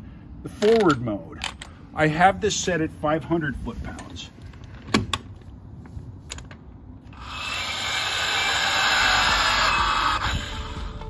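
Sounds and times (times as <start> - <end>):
torque wrench motor whirring: 7.1 - 11.0.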